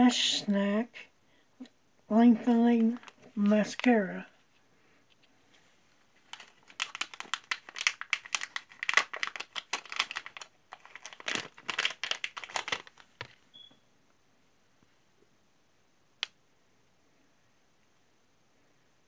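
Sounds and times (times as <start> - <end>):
plastic pouch crinkling: 2.4 - 4.0, 6.1 - 13.4.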